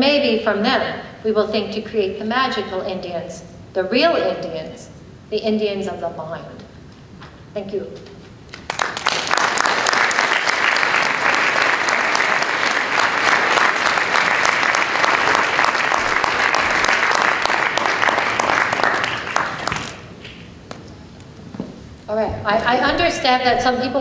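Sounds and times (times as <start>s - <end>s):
audience applauding: 8.5s - 20.1s.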